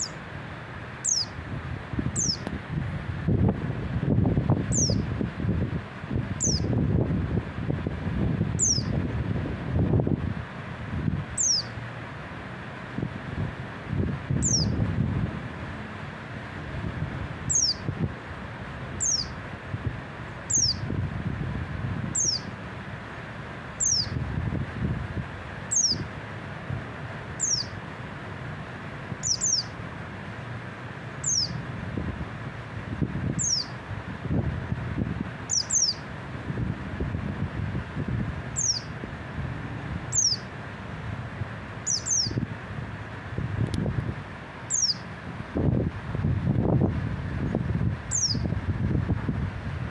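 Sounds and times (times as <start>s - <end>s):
bird calling: 0.0s - 0.2s, 1.0s - 1.4s, 2.2s - 2.4s, 4.7s - 5.0s, 6.4s - 6.7s, 8.6s - 8.9s, 11.4s - 11.8s, 14.4s - 14.8s, 17.5s - 17.9s, 19.0s - 19.4s, 20.5s - 20.8s, 22.2s - 22.5s, 23.8s - 24.2s, 25.7s - 26.1s, 27.4s - 27.8s, 29.2s - 29.8s, 31.2s - 31.6s, 33.4s - 33.8s, 35.5s - 36.0s, 38.6s - 38.9s, 40.1s - 40.5s, 41.8s - 42.4s, 44.7s - 45.1s, 48.1s - 48.4s
wind on microphone: 1.0s - 49.9s.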